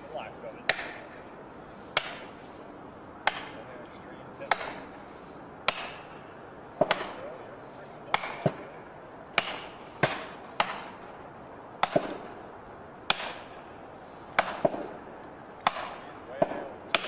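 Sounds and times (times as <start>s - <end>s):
axe hammering plastic wedges: 5.7s - 6.1s, 8.1s - 8.7s, 15.6s - 17.0s.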